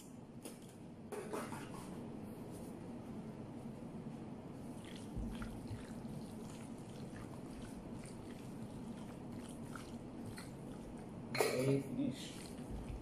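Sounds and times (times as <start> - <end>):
steady low hum: 0.0 - 13.0
hands squishing wet meat: 4.7 - 11.2.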